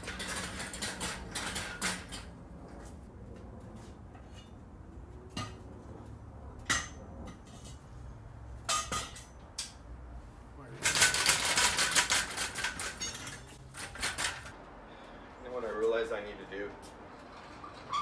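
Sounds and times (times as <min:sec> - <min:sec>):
metal parts and tools clattering: 0:00.0 - 0:02.4, 0:10.8 - 0:14.6.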